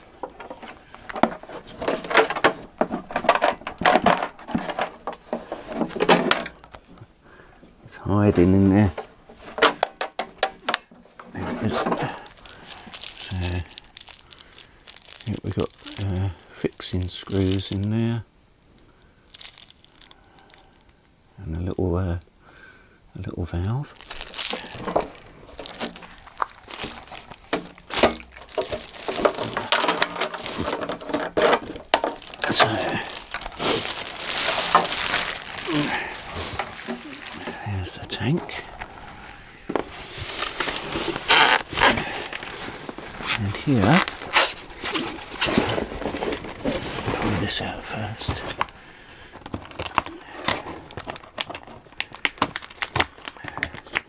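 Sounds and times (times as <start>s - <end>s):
plastic bag rustling: 0.0s - 6.9s, 8.5s - 17.9s, 19.3s - 20.9s, 23.9s - 54.0s
loose parts rattling in plastic tank: 0.2s - 6.8s, 24.1s - 35.6s.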